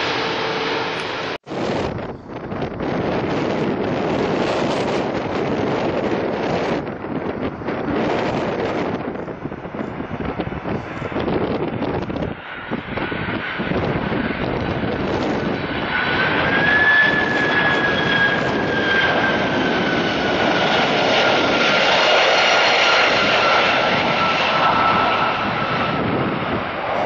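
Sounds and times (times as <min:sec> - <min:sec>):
jet engine roar: 0:00.0 - 0:27.0
high engine whine falling in pitch: 0:14.9 - 0:21.2.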